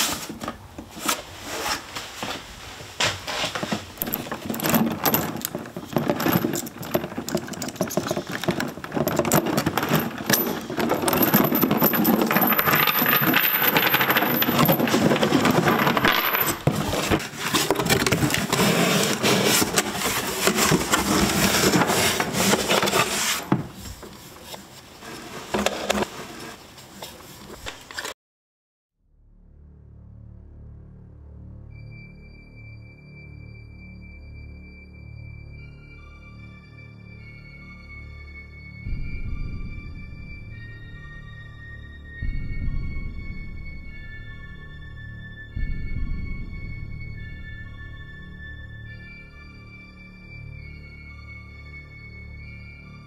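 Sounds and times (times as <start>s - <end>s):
padlock handling: 4.0s - 18.7s
steel chain rattling: 4.0s - 23.0s.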